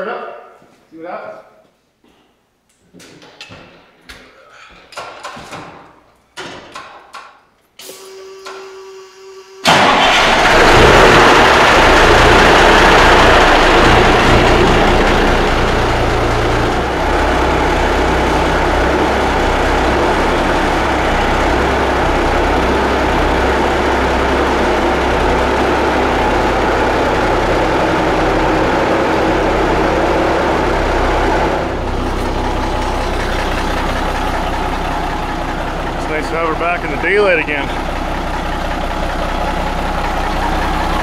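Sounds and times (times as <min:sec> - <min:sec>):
truck diesel engine idling: 0:09.7 - 0:41.0.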